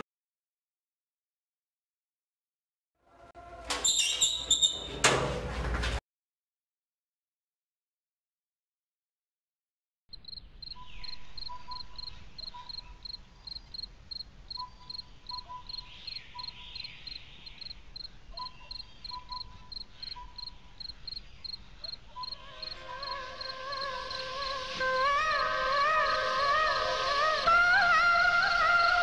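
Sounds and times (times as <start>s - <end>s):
crickets chirping: 10.1s - 29.0s.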